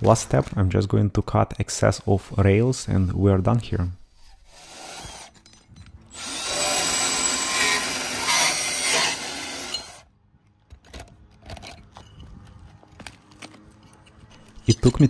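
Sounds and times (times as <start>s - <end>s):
band saw cutting metal rail: 1.8s - 10.0s.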